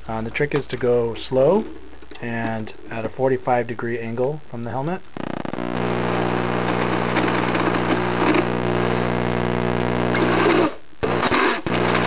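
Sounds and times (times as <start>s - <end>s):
electric drill boring plastic: 10.2s - 12.0s.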